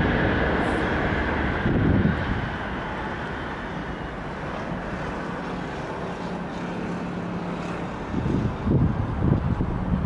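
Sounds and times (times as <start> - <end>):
distant train rushing: 0.0 - 10.0.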